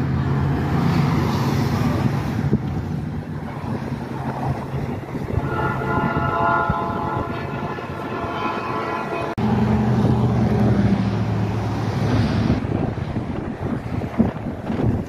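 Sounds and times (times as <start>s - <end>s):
low engine rumble: 0.0s - 15.0s
wind noise: 0.0s - 15.0s
locomotive air horn: 5.2s - 9.4s.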